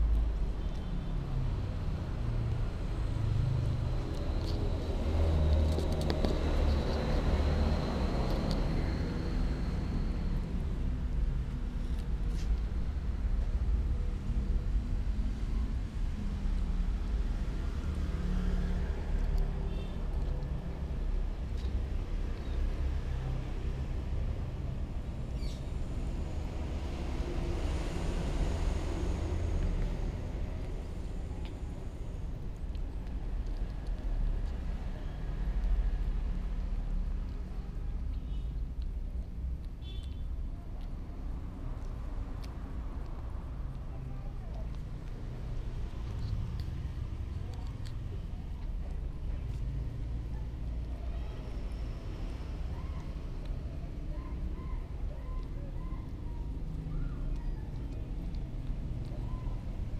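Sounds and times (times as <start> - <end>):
faint clicks of kitten chewing: 0.0 - 59.9.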